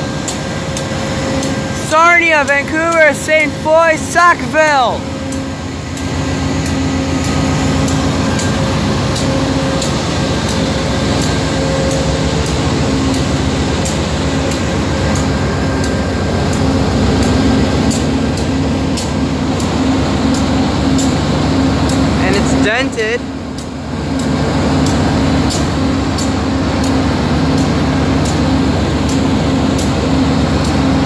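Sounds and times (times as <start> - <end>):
diesel locomotive engine drone: 0.0 - 31.0.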